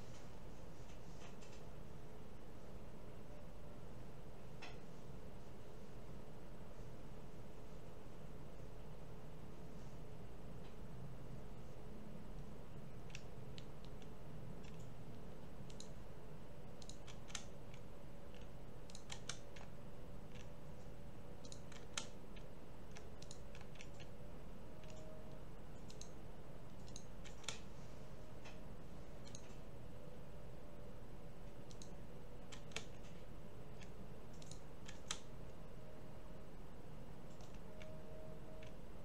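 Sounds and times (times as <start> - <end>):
steady low hum: 0.0 - 39.0
mouse and keyboard clicking: 12.9 - 15.0, 15.6 - 16.0, 16.7 - 20.6, 21.4 - 24.2, 24.8 - 27.7, 29.2 - 29.6, 31.4 - 35.3, 37.3 - 38.8.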